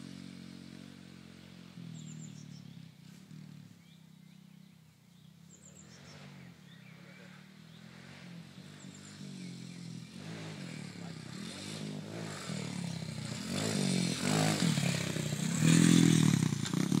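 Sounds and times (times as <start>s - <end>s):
motorbike engine revving: 5.7s - 17.0s.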